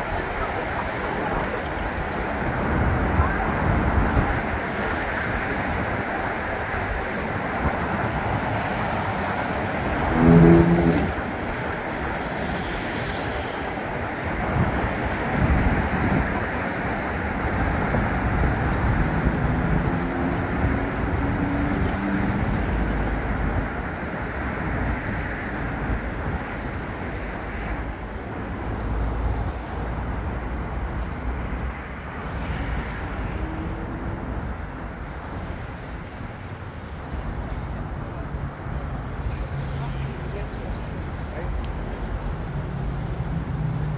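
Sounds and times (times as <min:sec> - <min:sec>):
bicycles passing: 0:00.0 - 0:43.9
town hum: 0:00.0 - 0:43.9
loud pitched sound: 0:10.0 - 0:11.2.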